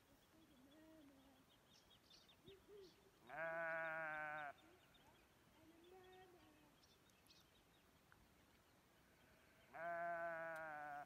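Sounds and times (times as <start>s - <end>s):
sheep bleating: 3.2s - 4.7s, 9.7s - 11.0s.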